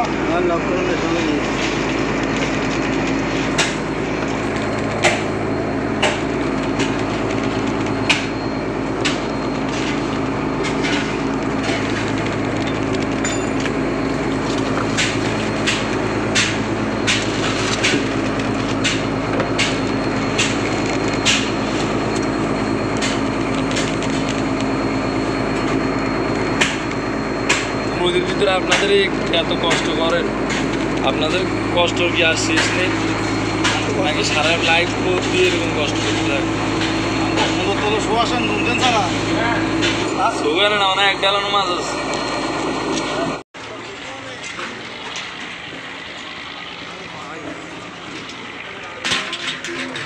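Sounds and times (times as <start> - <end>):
boat engine droning: 0.0 - 50.0.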